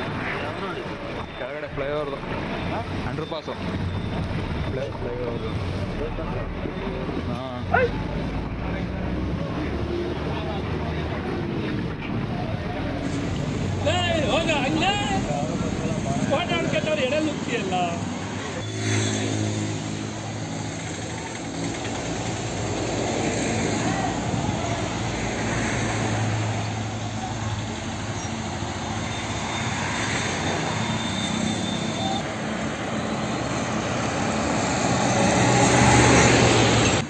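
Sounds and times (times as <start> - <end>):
road noise rushing hiss: 12.9 - 37.0.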